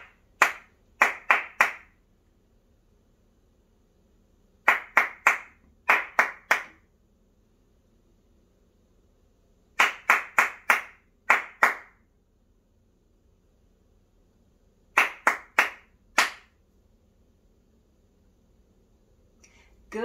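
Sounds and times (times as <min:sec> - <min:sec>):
hand clapping: 0:00.0 - 0:02.0, 0:04.6 - 0:06.8, 0:09.8 - 0:12.0, 0:15.0 - 0:16.6.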